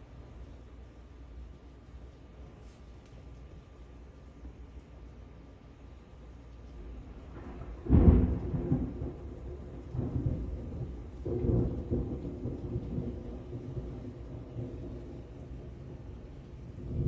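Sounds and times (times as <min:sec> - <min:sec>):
rain falling: 0:00.0 - 0:17.0
thunder clap and rumble: 0:06.7 - 0:17.0.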